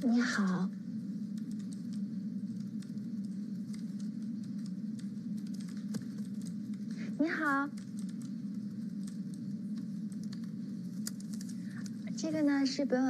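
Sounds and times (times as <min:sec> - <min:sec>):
steady low hum: 0:00.0 - 0:13.0
mouse clicking: 0:01.3 - 0:06.9
keyboard keys clicking: 0:02.6 - 0:06.8, 0:07.4 - 0:08.3.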